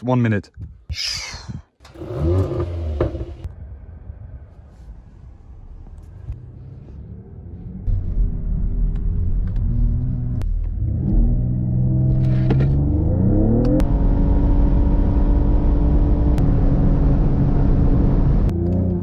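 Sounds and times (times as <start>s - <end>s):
wind and road noise: 0.0s - 19.0s
car engine accelerating hard: 1.9s - 3.5s, 6.6s - 19.0s.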